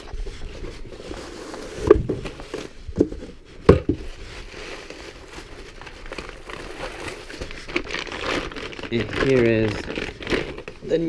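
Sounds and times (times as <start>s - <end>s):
sharp knocks on cardboard box: 3.0s - 4.0s
plastic bag crinkling: 4.2s - 11.0s.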